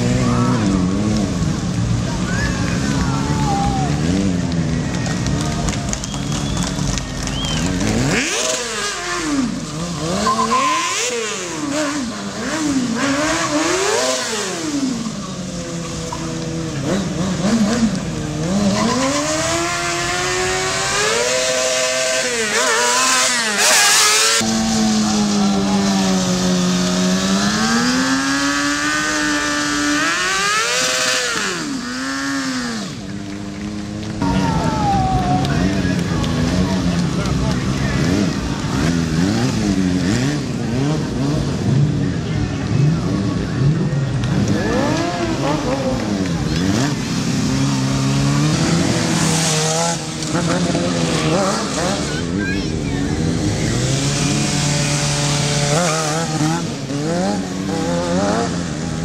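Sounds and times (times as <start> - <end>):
motorcycle engine revving: 0.0 - 34.8, 35.4 - 59.0
tyre squealing: 9.7 - 11.9, 18.5 - 20.1.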